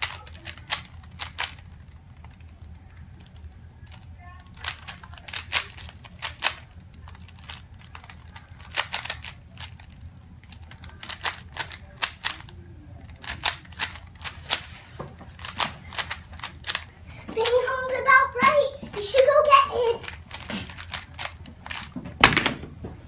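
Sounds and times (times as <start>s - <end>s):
puzzle cube layers clacking: 4.5s - 17.6s, 20.0s - 22.4s.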